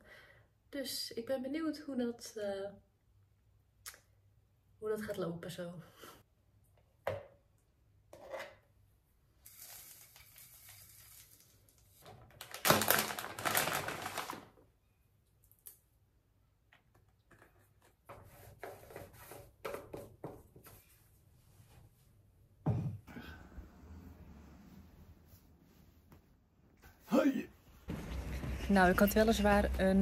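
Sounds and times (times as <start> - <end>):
cereal pouring into plastic cup: 9.4 - 11.9, 12.5 - 14.4
plastic packet crinkling: 12.3 - 14.5.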